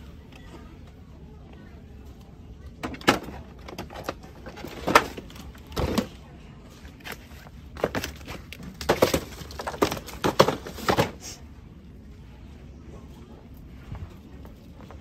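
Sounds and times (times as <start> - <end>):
low store background noise: 0.0 - 15.0.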